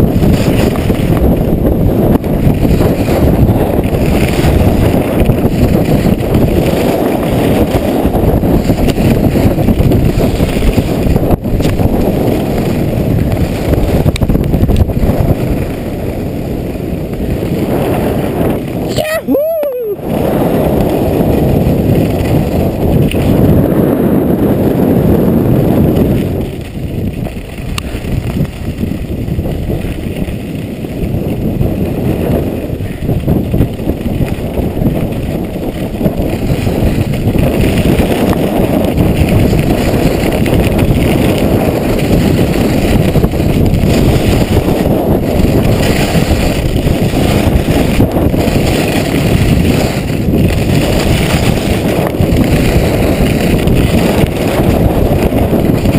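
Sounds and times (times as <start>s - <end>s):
skis sliding on packed snow: 0.0s - 55.9s
wind buffeting microphone: 0.0s - 55.9s.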